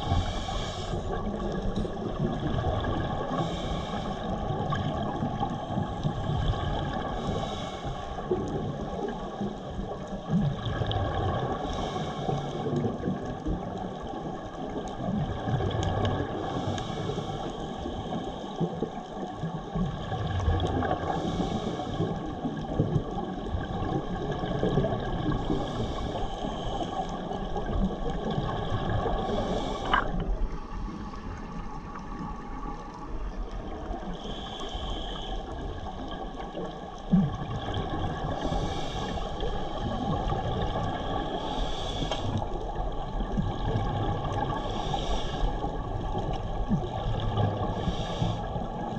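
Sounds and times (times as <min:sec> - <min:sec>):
regulator breathing hiss: 0:00.0 - 0:01.2, 0:03.4 - 0:04.4, 0:07.2 - 0:08.2, 0:29.3 - 0:30.2, 0:34.1 - 0:35.6, 0:38.4 - 0:39.7, 0:41.0 - 0:42.4, 0:44.6 - 0:45.7, 0:47.6 - 0:48.6
underwater rumble: 0:00.0 - 0:48.9
bubbles gurgling: 0:01.0 - 0:03.4, 0:08.4 - 0:11.6, 0:22.0 - 0:34.1, 0:35.5 - 0:41.5, 0:42.4 - 0:44.9, 0:45.6 - 0:48.9.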